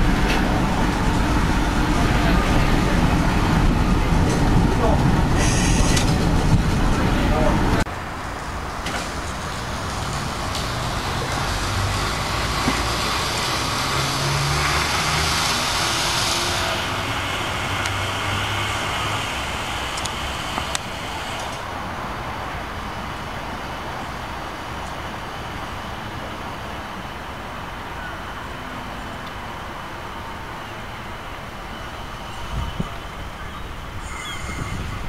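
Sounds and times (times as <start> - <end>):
electric tram rumbling on rails: 0.0 - 35.0.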